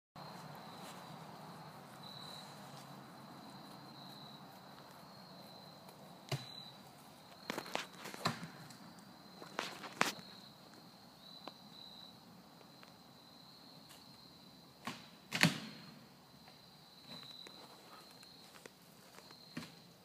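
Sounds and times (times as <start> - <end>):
footsteps on twigs and leaves: 0.2 - 10.9, 17.1 - 19.8.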